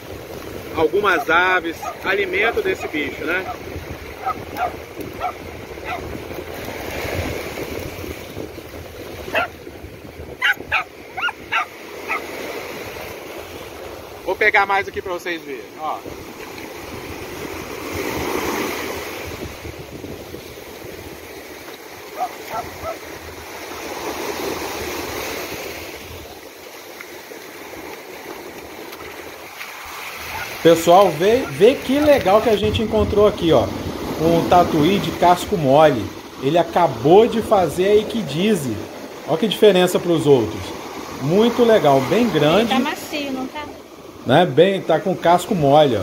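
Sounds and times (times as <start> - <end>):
surf washing in: 0.0 - 46.0.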